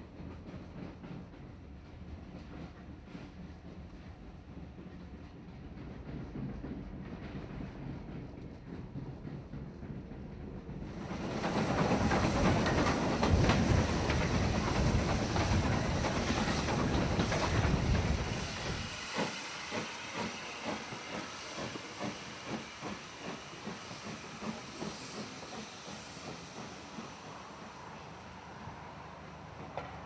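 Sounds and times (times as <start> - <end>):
moving train rumble: 0.0 - 30.0
steam locomotive beats: 0.0 - 30.0
steam locomotive hissing steam: 0.0 - 30.0.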